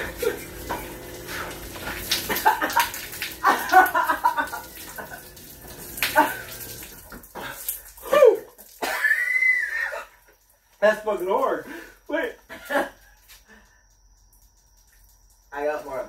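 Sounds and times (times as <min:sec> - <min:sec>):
garage door opener humming: 0:00.0 - 0:06.9
beer splashing: 0:00.0 - 0:16.0
people crying out: 0:08.0 - 0:10.0.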